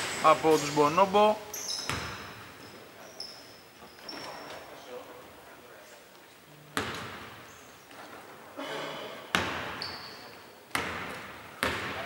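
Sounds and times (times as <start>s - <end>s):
basketball bouncing in echoing hall: 0.0s - 3.2s, 6.7s - 8.0s, 9.2s - 12.0s.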